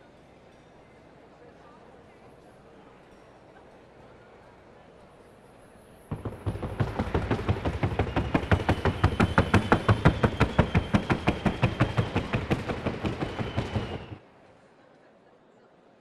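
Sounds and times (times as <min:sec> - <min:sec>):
horse hooves drumming on wooden board: 0:06.1 - 0:14.2.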